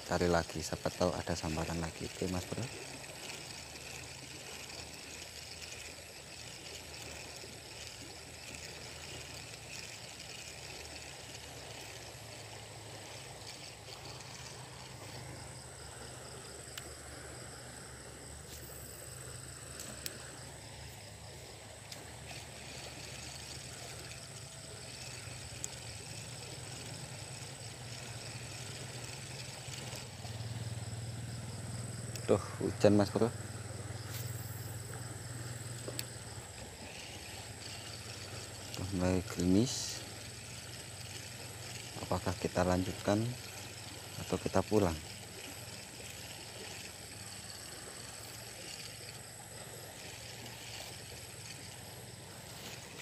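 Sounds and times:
high buzz of insects: 0.0s - 53.0s
faint clicks: 21.8s - 30.4s, 34.1s - 39.4s.

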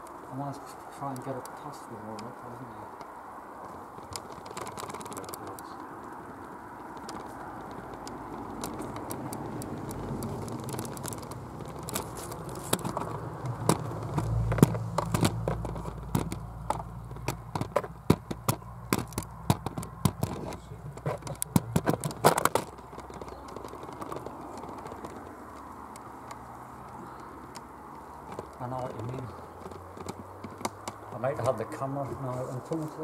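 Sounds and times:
camera handling clicks and knocks: 6.1s - 28.6s.

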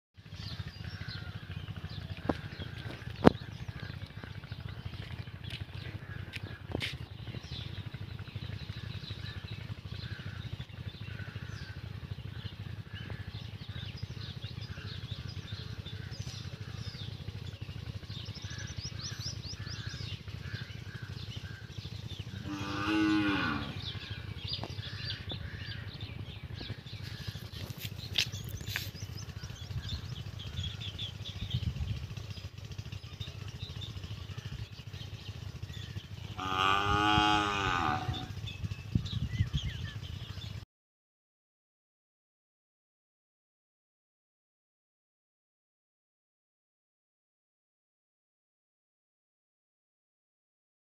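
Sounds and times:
steady low rumble: 0.2s - 40.6s
cow mooing: 22.3s - 24.0s, 36.3s - 38.4s
bird chirps: 26.0s - 36.4s.

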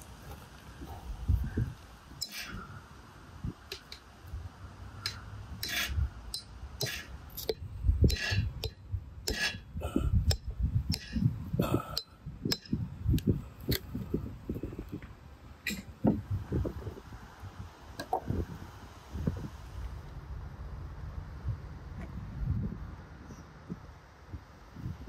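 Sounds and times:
sharp knocks and clinks: 5.1s - 9.4s.

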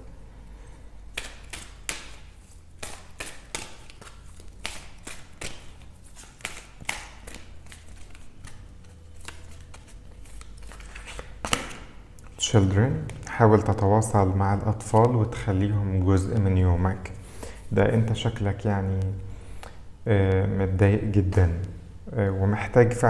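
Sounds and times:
cards being shuffled: 1.1s - 11.9s.

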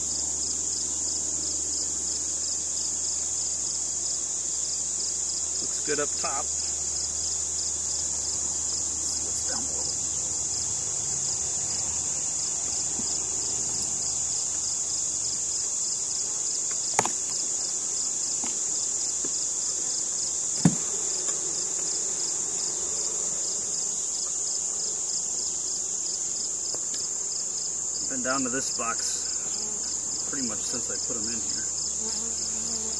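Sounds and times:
honeybees humming: 0.0s - 32.9s
insect trill: 0.0s - 32.9s
knocks on wooden hive box: 16.7s - 17.4s, 20.6s - 21.4s.

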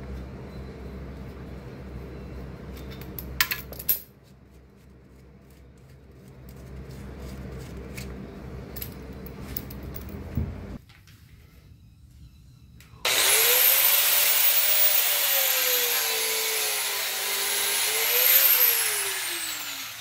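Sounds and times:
steady low hum: 0.0s - 13.1s.

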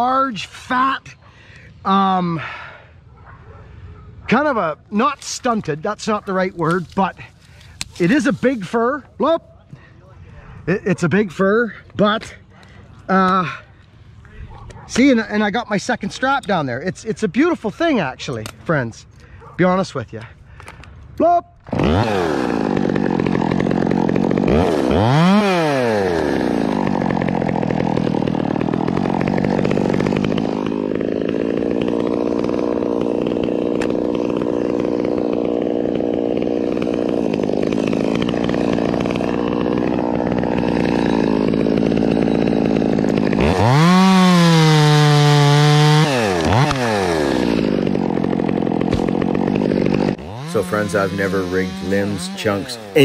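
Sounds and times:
chainsaw idling and revving: 4.3s - 9.1s, 21.6s - 53.0s.

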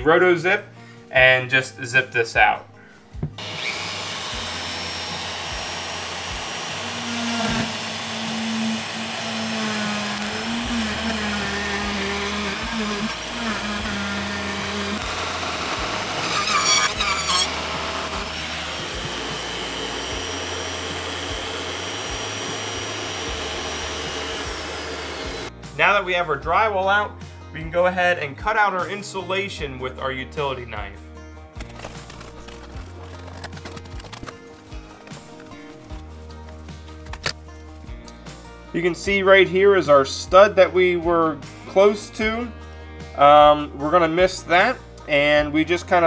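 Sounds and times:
spiral saw whining through drywall: 3.4s - 25.5s.

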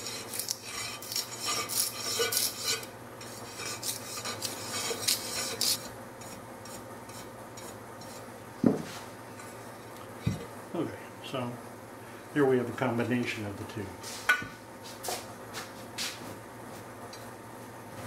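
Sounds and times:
razor blade scraping glass: 0.0s - 8.2s.

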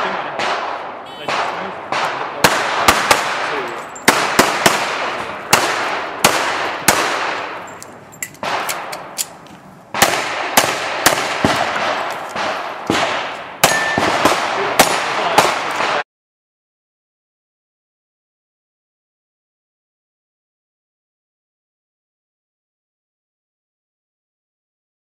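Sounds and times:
pistol shots with echoing ring: 0.0s - 16.0s.

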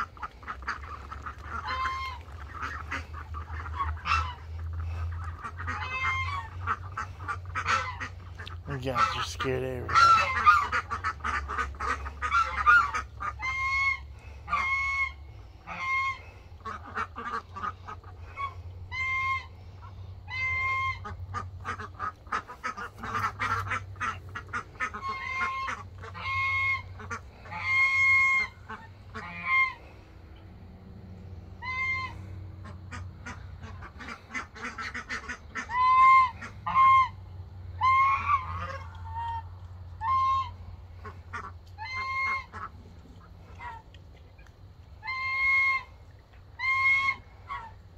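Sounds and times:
faint flock calls: 0.0s - 30.0s
geese honking: 0.0s - 30.1s, 31.2s - 47.8s.

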